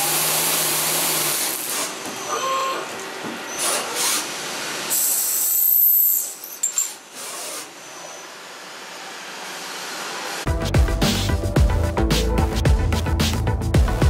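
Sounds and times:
lathe cutting steel: 0.0 - 10.5.

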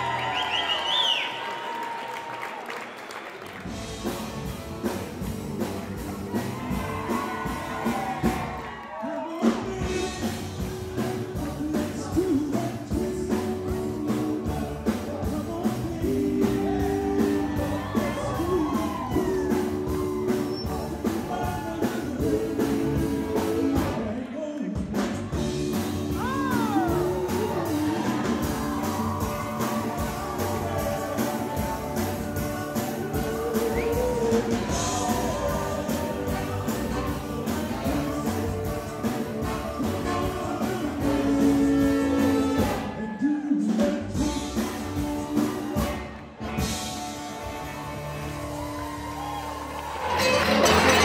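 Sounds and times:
song with singer over beat: 9.1 - 46.9.

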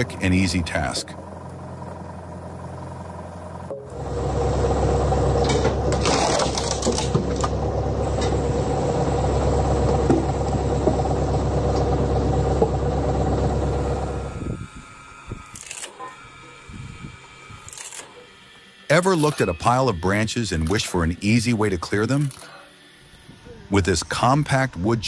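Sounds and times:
tractor engine running: 0.0 - 15.6
wood cracking and clattering: 5.9 - 7.6.

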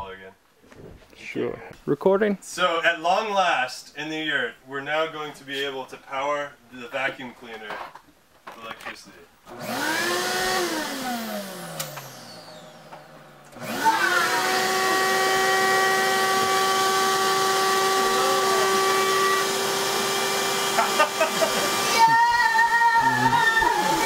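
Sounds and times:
vacuum cleaner motor whining: 9.5 - 24.0.

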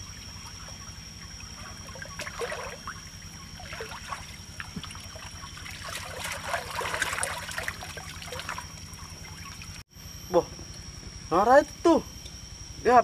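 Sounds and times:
water sloshing and trickling: 0.0 - 9.9
motor running with low pulse: 0.0 - 13.0.

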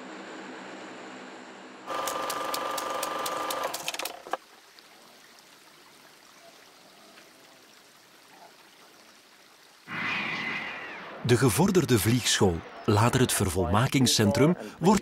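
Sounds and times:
high whine: 9.9 - 14.6.

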